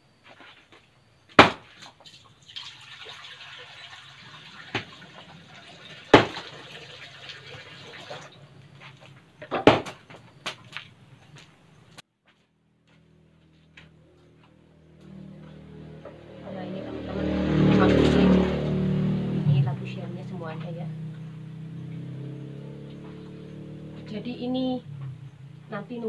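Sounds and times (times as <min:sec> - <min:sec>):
sharp knocks: 0:01.4 - 0:01.7, 0:09.4 - 0:10.6
water pouring into a wok: 0:02.0 - 0:08.5.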